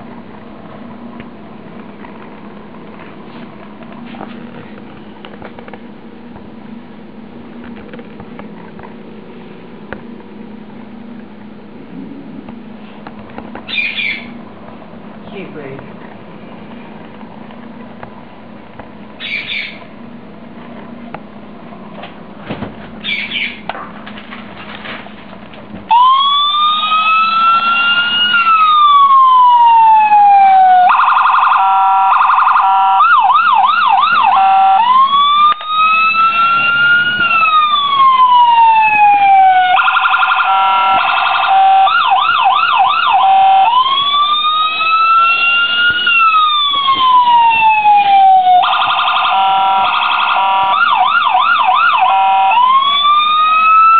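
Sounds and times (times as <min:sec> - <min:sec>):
police siren cycling: 0:13.6 - 0:14.4, 0:25.9 - 0:53.9
short high siren chirps: 0:13.7 - 0:14.3, 0:25.9 - 0:53.9.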